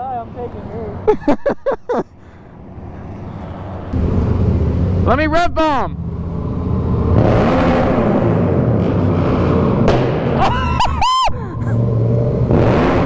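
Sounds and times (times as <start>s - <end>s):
motorcycle engine revving: 2.8s - 10.7s, 11.4s - 13.0s.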